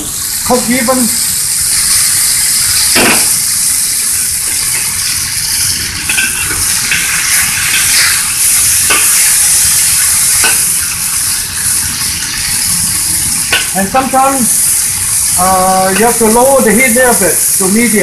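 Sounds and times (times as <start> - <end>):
chicken sizzling in oil: 0.0 - 18.0
metal spatula scraping wok: 6.1 - 9.4.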